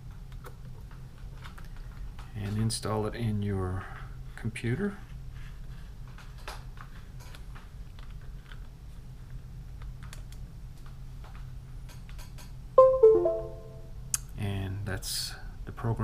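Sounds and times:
computer chime: 12.8 - 13.8.

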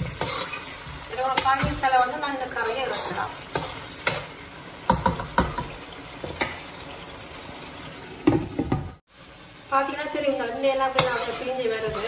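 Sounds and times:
metal spoon scraping a pan: 0.0 - 6.7, 10.8 - 12.0
curry bubbling in a wok: 0.0 - 12.0.

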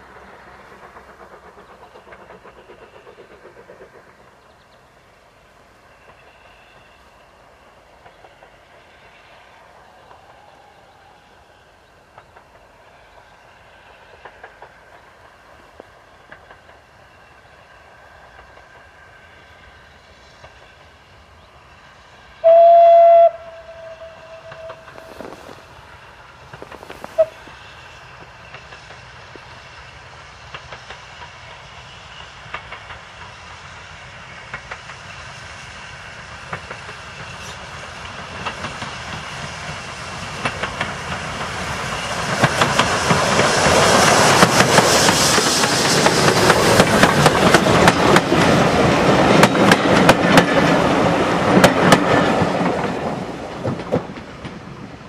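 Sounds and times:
steam locomotive exhaust: 0.0 - 55.0
steam whistle blast: 22.4 - 25.2, 27.1 - 27.5.

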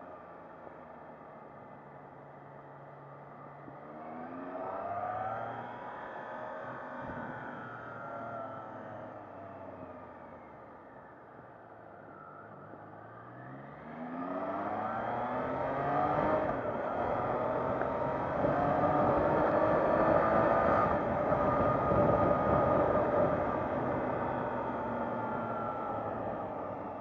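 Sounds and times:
motorcycle engine accelerating: 13.6 - 27.0.

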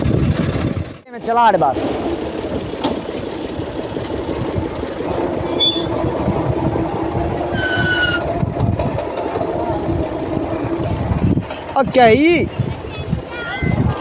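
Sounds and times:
tractor engine running: 0.0 - 14.0
high-pitched metallic squeals: 5.1 - 11.3.

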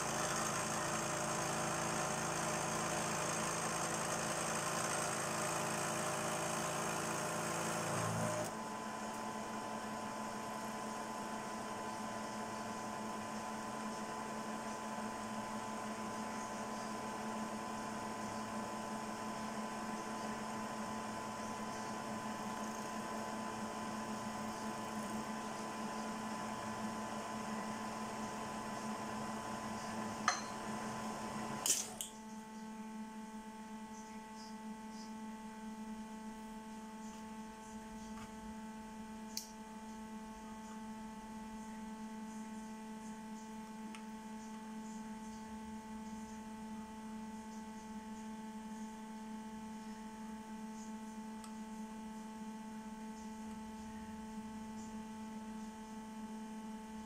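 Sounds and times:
milling machine cutting metal: 0.0 - 8.5
electrical hum: 0.0 - 57.0.

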